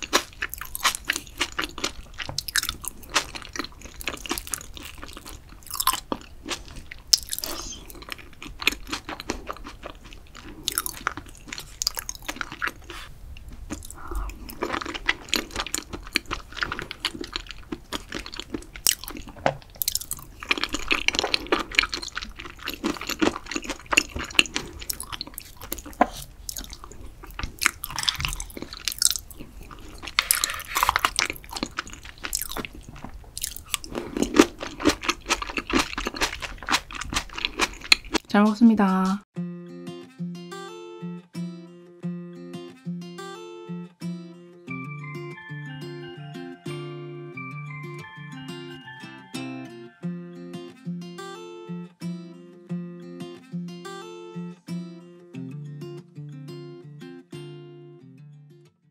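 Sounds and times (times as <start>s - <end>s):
crunchy chewing: 0.0s - 38.2s.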